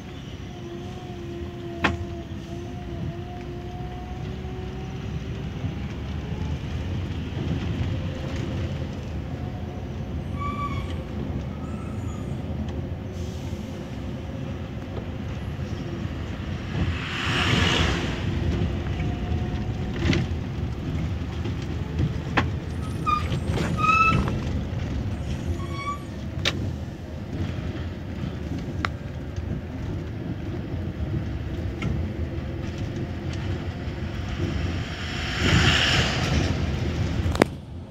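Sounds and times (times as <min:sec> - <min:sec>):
bus engine and road noise: 0:00.0 - 0:37.9
air brakes hissing: 0:13.0 - 0:14.1.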